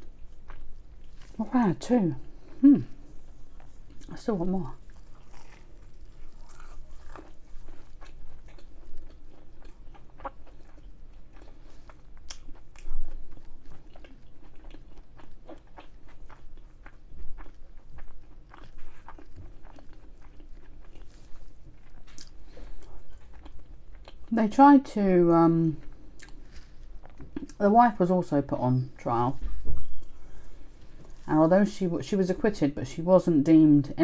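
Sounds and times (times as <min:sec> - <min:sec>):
crunchy pastry chewing: 0:00.0 - 0:01.6, 0:02.2 - 0:24.4, 0:25.5 - 0:27.6.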